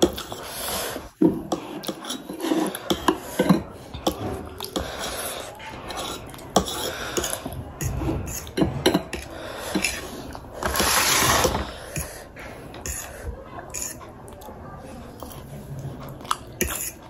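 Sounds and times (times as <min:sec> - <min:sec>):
dishes and cutlery clattering: 0:01.2 - 0:13.1.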